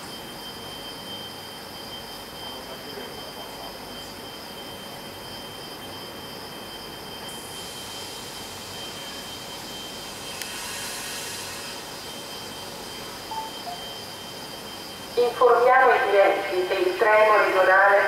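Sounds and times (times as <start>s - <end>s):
train equipment humming: 0.0s - 18.0s
air hiss: 10.0s - 12.0s.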